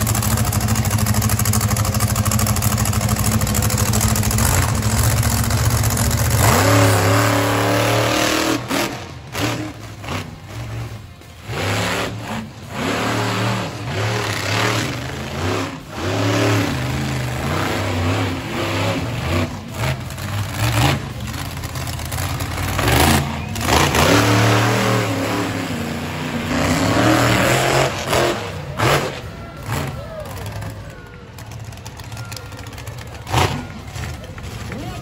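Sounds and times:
monster truck engine revving: 0:00.0 - 0:35.0.

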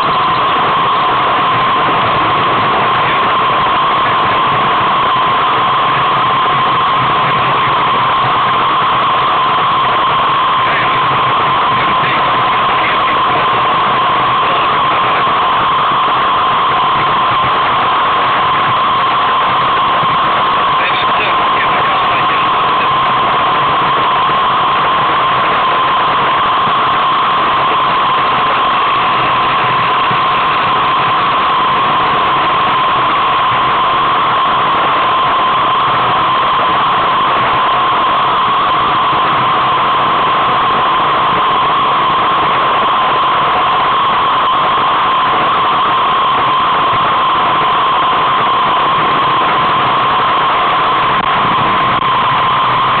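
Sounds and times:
constant hum: 0:00.0 - 0:53.0
wind noise on microphone: 0:51.0 - 0:53.0.

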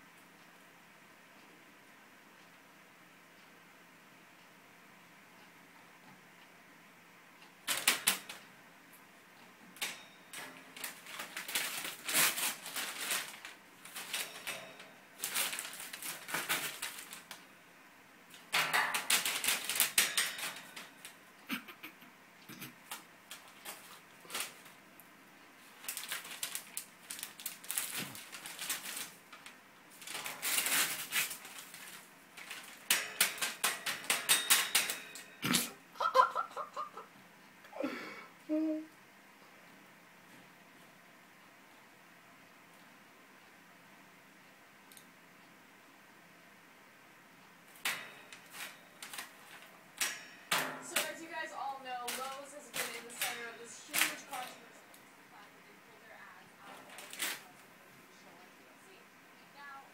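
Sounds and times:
parrot tearing paper: 0:10.8 - 0:17.3, 0:18.8 - 0:20.8, 0:25.8 - 0:29.2, 0:30.0 - 0:35.7, 0:52.0 - 0:54.7, 0:56.6 - 0:57.6.

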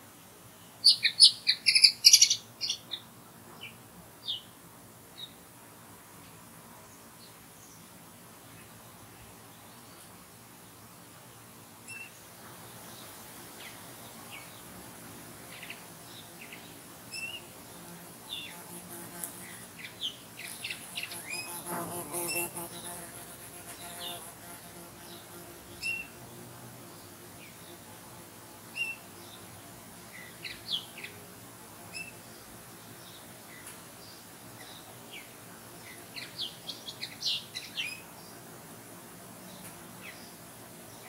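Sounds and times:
faint high hiss: 0:00.0 - 0:41.0
songbirds chirping: 0:00.4 - 0:05.6, 0:06.2 - 0:41.0
insect buzzing: 0:15.6 - 0:32.5.

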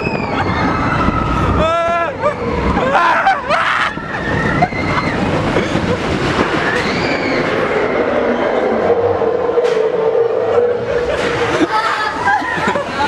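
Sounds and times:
roller coaster wheels rushing on rail: 0:00.0 - 0:13.0.

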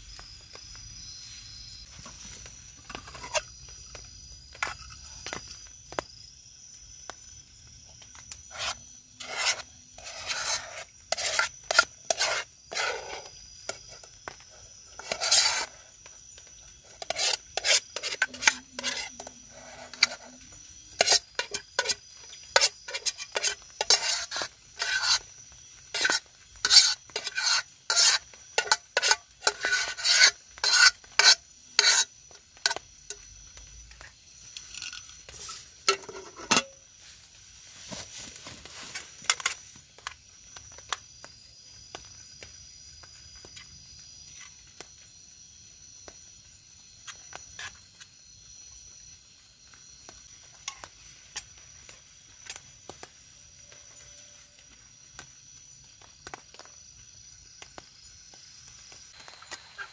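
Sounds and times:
spoon scraping metal pot: 0:02.9 - 0:03.5, 0:08.2 - 0:15.9, 0:16.8 - 0:25.3, 0:25.9 - 0:33.3, 0:34.6 - 0:36.8.

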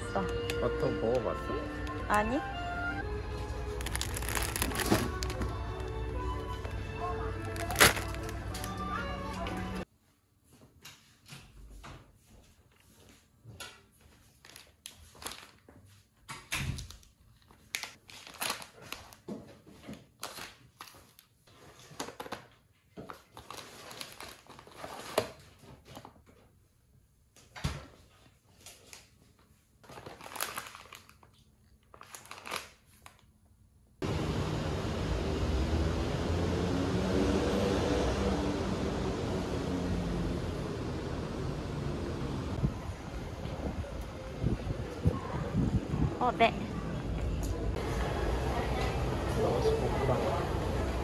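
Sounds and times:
plastic wrappers crinkling: 0:03.4 - 0:06.8, 0:07.4 - 0:08.8, 0:14.3 - 0:15.7, 0:16.9 - 0:19.3, 0:19.9 - 0:25.5, 0:29.8 - 0:33.3.

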